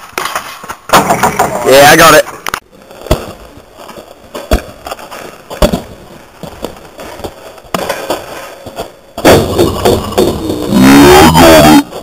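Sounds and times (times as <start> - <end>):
basketball bouncing on dirt: 3.0 - 10.8.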